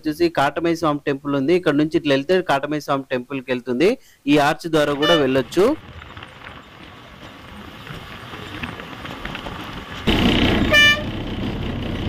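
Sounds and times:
bus running and road noise: 4.8s - 12.0s
vehicle horn toot: 5.0s - 5.4s, 10.7s - 11.2s.

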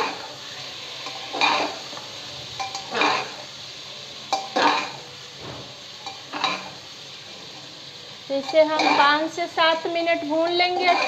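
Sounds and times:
oil sizzling: 0.0s - 11.0s
metal spoon scraping a pot: 2.6s - 3.4s, 6.0s - 6.7s, 8.4s - 9.1s, 10.7s - 11.0s.

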